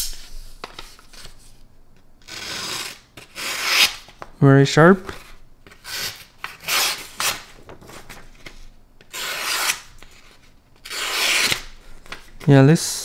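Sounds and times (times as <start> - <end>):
paper rustling: 7.2 - 8.7
knife slicing paper: 9.1 - 10.2, 10.8 - 11.8.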